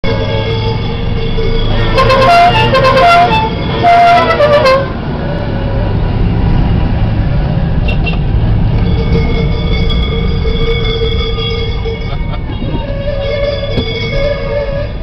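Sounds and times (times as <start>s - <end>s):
car engine droning: 0.0s - 15.0s
car horn toots: 0.6s - 5.0s, 8.9s - 15.0s.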